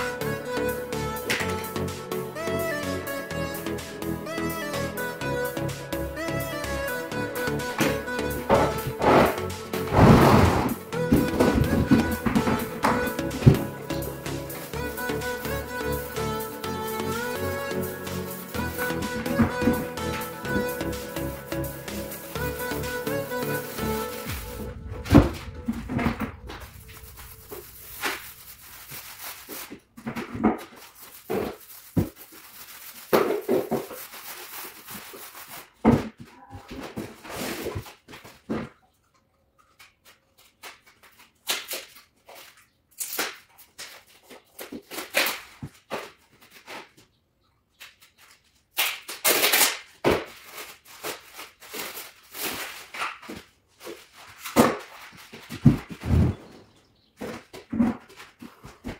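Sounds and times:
paper roll rustling and crackling: 0:25.4 - 0:38.6, 0:48.0 - 0:58.9.

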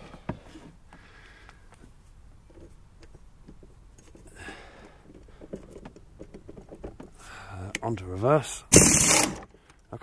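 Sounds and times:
tool handling clicks and knocks: 0:02.5 - 0:07.9.

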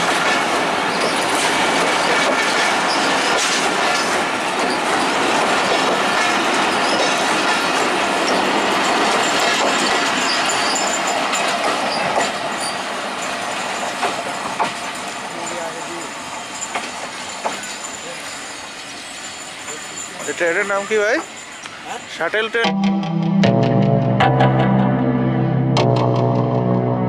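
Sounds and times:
train wheels clattering on rails: 0:00.0 - 0:22.6
high-pitched wheel squeals: 0:09.8 - 0:11.1.

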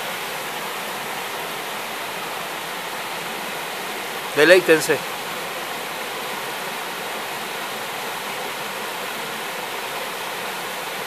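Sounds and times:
waterfall cascading over rocks: 0:00.0 - 0:11.0.

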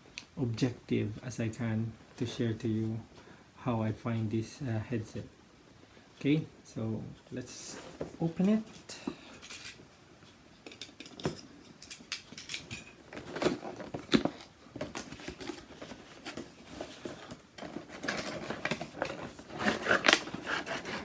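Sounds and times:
card and tape rustling: 0:10.7 - 0:21.0
cardboard box being cut open: 0:19.4 - 0:21.0.

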